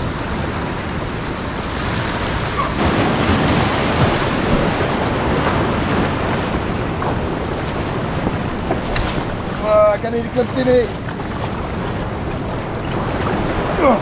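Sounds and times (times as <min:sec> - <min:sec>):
ocean surf washing through rocks: 0:00.0 - 0:14.0.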